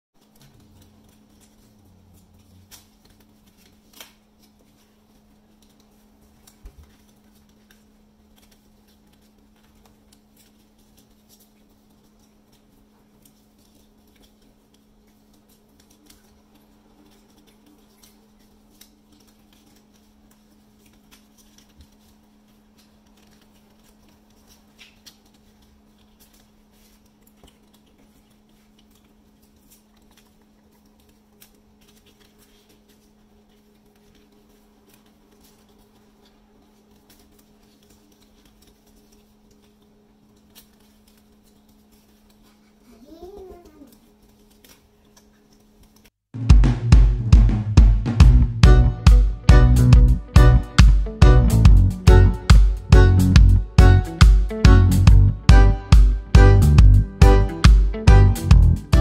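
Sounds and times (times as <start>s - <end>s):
paper being folded: 0.2s - 46.2s
steady low hum: 0.2s - 59.0s.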